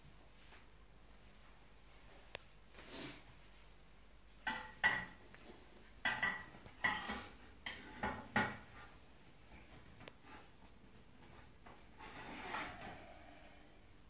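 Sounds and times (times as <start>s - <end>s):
metal pot clanking: 6.0s - 8.6s.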